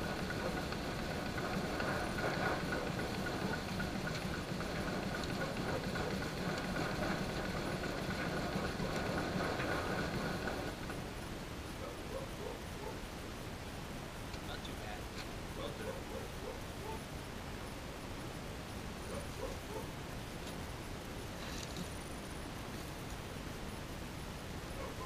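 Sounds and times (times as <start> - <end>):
machine motor hum: 0.0 - 11.1
fan whine: 0.0 - 24.9.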